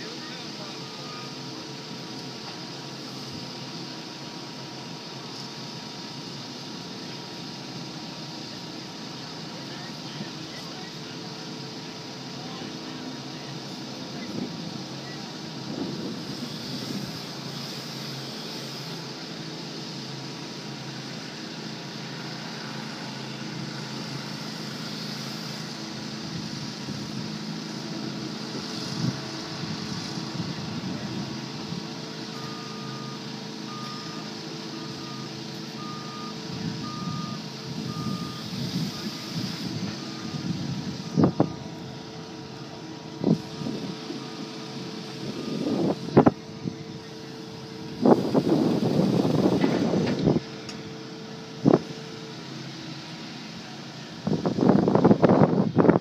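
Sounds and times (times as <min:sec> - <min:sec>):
diesel engine running: 0:00.0 - 0:56.0
reversing alarm beeping: 0:00.1 - 0:01.7, 0:15.0 - 0:15.4, 0:32.2 - 0:41.9, 0:42.5 - 0:47.4.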